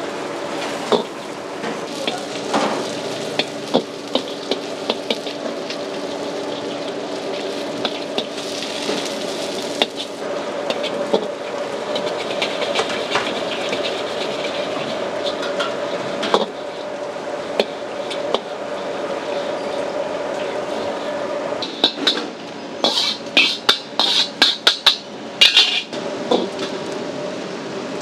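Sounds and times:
noodles sizzling: 0.0s - 27.0s
steady hum: 0.0s - 28.0s
metal spatula scraping wok: 1.9s - 16.8s, 22.8s - 25.9s
spatula clanking on wok: 22.8s - 26.5s.

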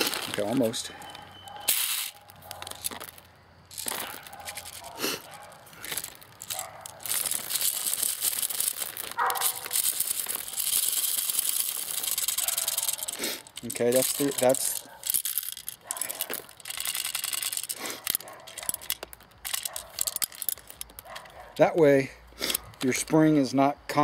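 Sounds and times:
plastic bag crinkling: 0.0s - 21.6s
plastic pellets rattling: 0.0s - 21.7s.

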